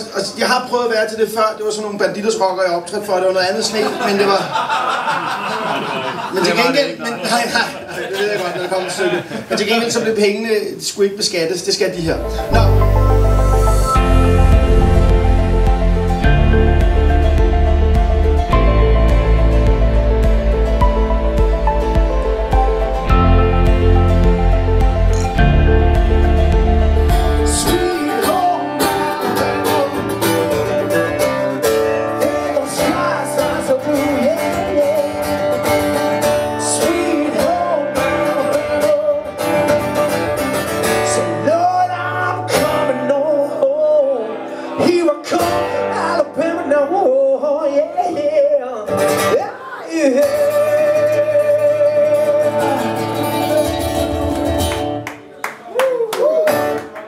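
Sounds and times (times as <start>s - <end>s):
acoustic guitar: 12.2s - 55.4s
man singing: 27.4s - 30.6s, 32.1s - 35.4s, 36.5s - 39.6s, 41.0s - 54.2s.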